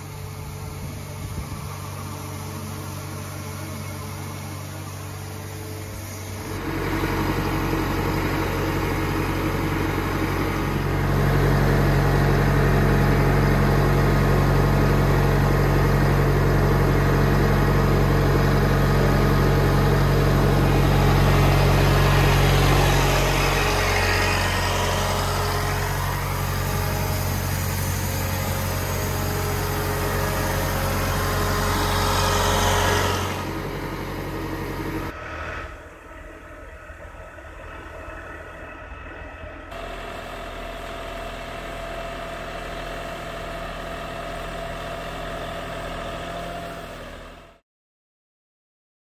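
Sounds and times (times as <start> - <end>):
tractor engine running: 0.0 - 47.6
rotating brush and water spray hiss: 21.8 - 34.1.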